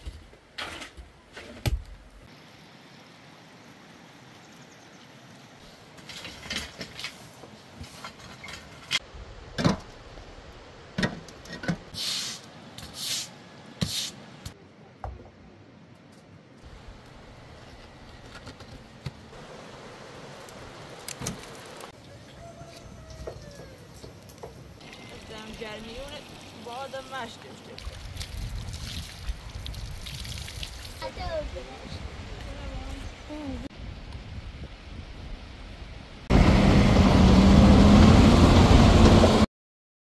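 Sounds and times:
short hissing scrapes: 11.9 - 14.2.

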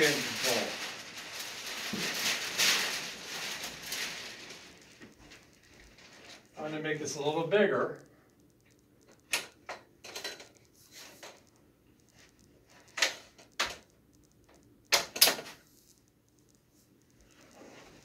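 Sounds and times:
clicks and knocks of metal and plastic: 9.1 - 11.5, 14.9 - 15.6.

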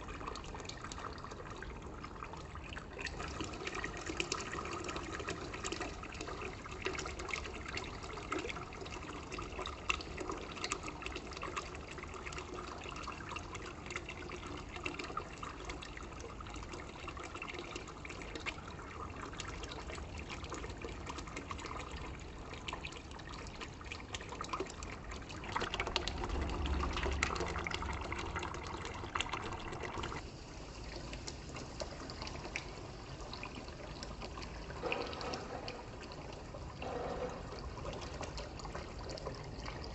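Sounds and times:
crackling bubbles: 0.0 - 39.9
water pouring into a container: 0.0 - 39.9.

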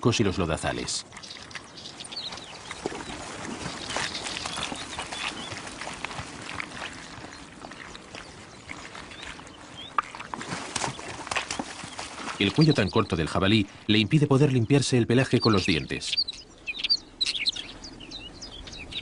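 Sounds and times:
splashing in shallow water: 0.0 - 13.3
boars rooting in mud: 0.0 - 16.7.

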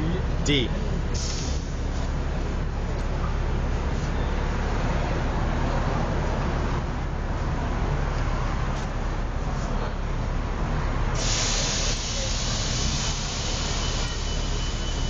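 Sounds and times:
street traffic rumble: 0.0 - 15.0
loud hiss: 11.2 - 15.0.

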